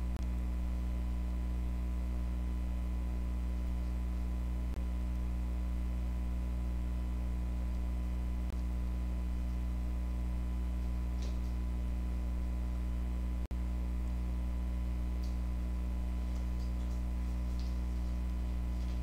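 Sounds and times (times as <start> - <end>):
electrical mains hum: 0.0 - 19.0.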